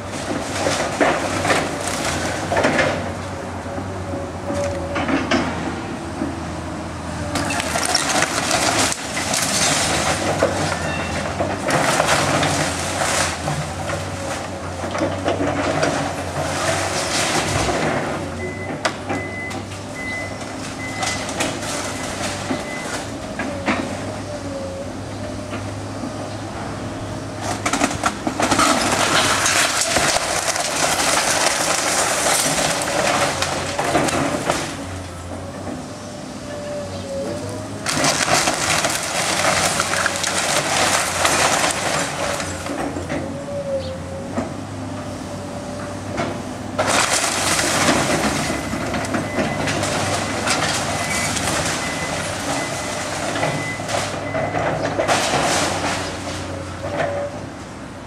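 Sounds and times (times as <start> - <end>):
debris crashing: 0.0 - 3.3, 7.4 - 24.2, 27.4 - 35.8, 37.4 - 43.4, 46.7 - 57.3
excavator diesel engine: 0.0 - 58.0
timber cracking and splintering: 7.4 - 14.6, 27.6 - 35.0, 37.8 - 42.9, 46.8 - 54.0.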